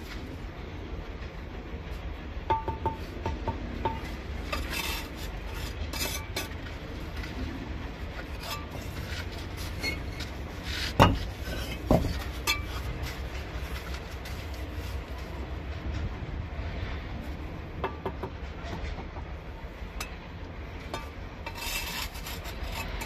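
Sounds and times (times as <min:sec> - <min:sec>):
mortar scraping: 0:03.9 - 0:15.4, 0:20.8 - 0:23.0.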